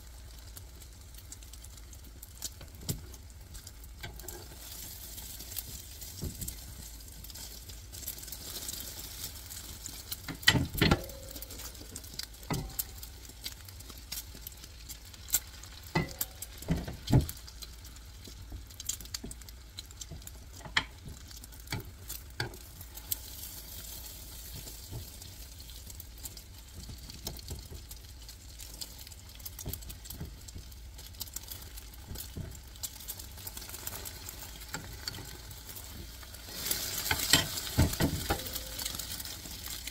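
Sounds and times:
egg sizzling in frying pan: 0.0 - 39.9
utensils scraping and knocking pan: 36.5 - 39.0.

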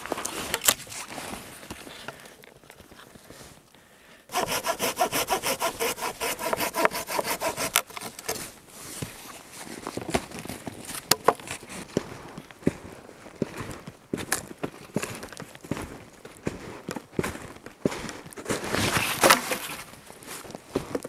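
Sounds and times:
saw cutting wood: 4.3 - 8.4.

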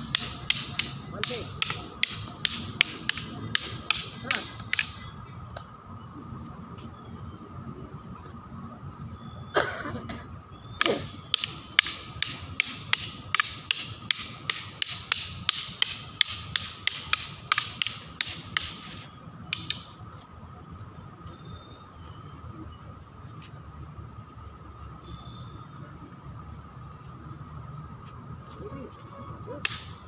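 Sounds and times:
sticks clacking together: 0.0 - 5.0, 10.8 - 20.0, 29.6 - 30.0.

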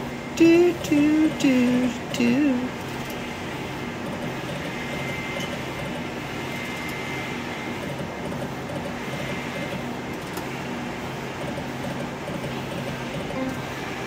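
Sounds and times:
hum of room machinery: 0.0 - 14.0
slot machine electronic tones: 13.4 - 14.0.

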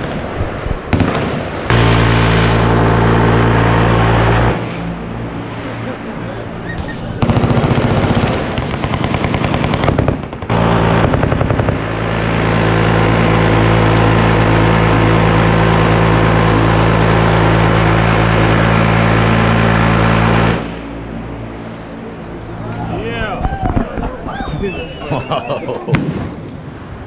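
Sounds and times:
minigun continuous fire buzz: 0.0 - 24.6
machine gun bursts: 7.2 - 11.9.

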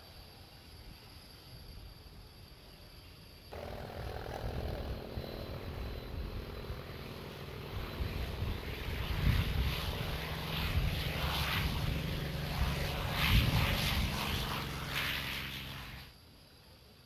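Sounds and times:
propeller plane engine at high power: 3.5 - 16.2.

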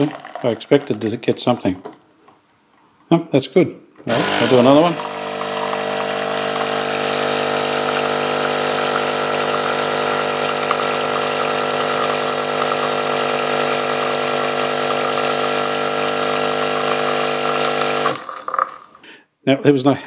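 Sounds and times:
coffee machine pump buzzing: 4.1 - 18.8.

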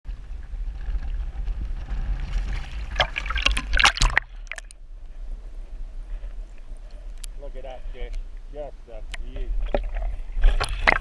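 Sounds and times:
water splashing: 1.8 - 4.8, 9.5 - 11.0.

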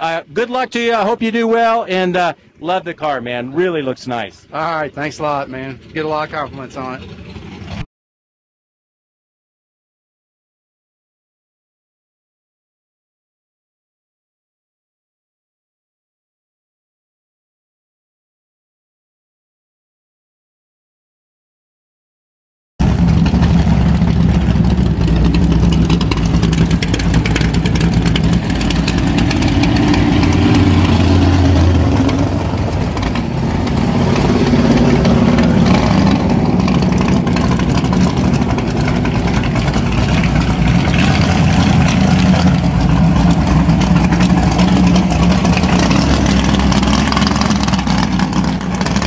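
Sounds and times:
loud car engine running: 0.0 - 7.9, 22.8 - 49.0.

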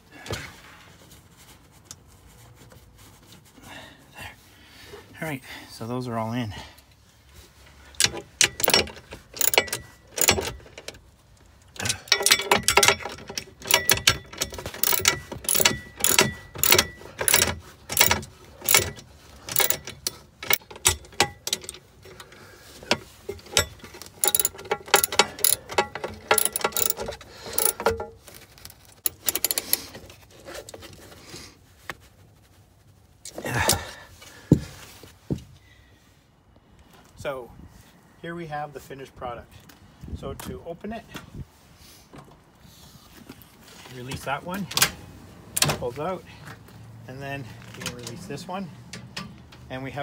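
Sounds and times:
ratchet wrench clicking: 8.0 - 11.0, 11.8 - 21.8, 22.8 - 28.2, 29.0 - 29.8.

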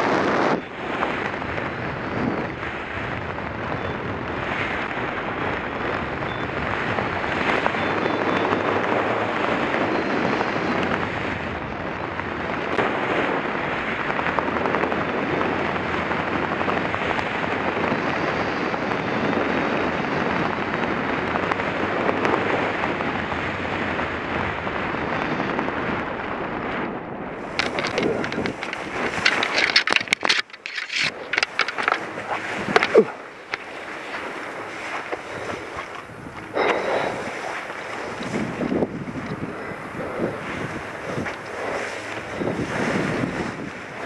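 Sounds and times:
wind rushing over microphone: 0.0 - 44.0
rustling and scraping clicks in grass: 27.4 - 44.0.

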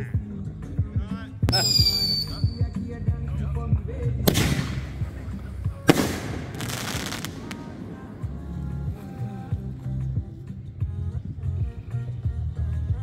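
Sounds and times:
firework whistling: 1.5 - 2.8, 5.9 - 9.4
firework shells bursting: 4.3 - 9.6.

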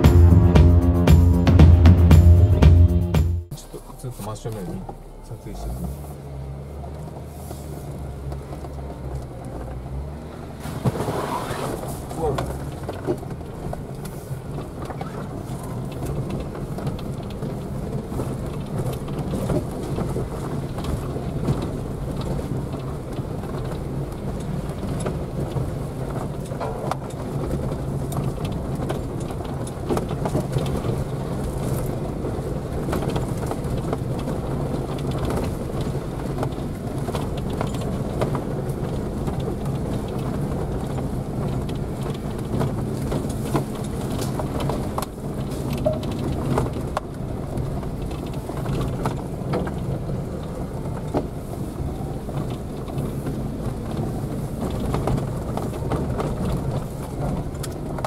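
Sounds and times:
engine and tyre drone: 0.0 - 58.0
knocks and rattles: 24.8 - 31.0.

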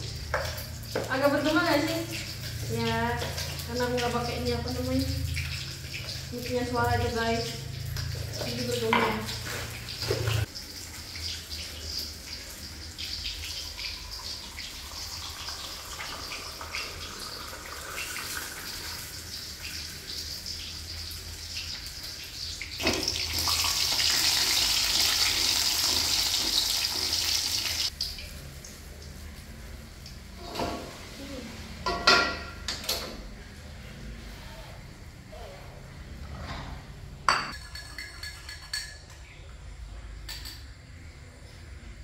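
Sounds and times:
tap water running into sink: 22.8 - 27.9.

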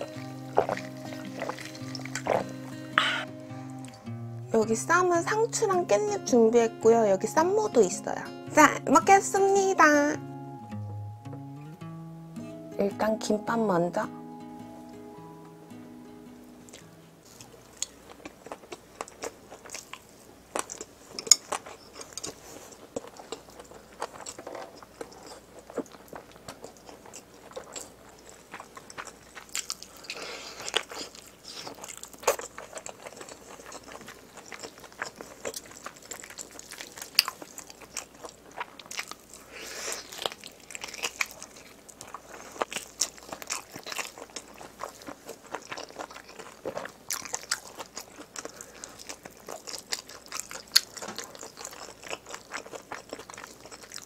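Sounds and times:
close-miked chewing and biting: 0.0 - 4.1, 16.7 - 54.0
mouth clicks: 0.0 - 4.1.

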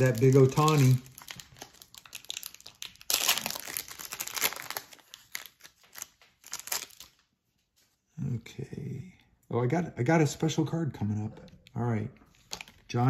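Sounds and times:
card pack wrapper tearing and crinkling: 0.0 - 7.2, 12.3 - 12.9.

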